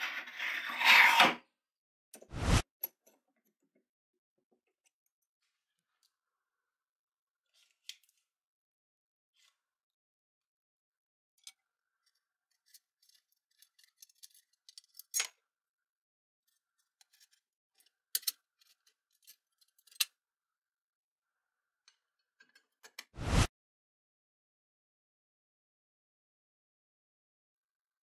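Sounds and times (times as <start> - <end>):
small metallic clicks and taps: 17.0 - 20.1.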